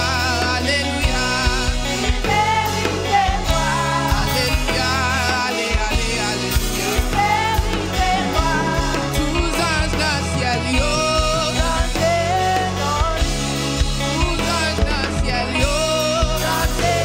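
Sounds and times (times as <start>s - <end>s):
woman singing with vibrato: 0.0s - 13.4s
band with beat and bass: 0.0s - 17.0s.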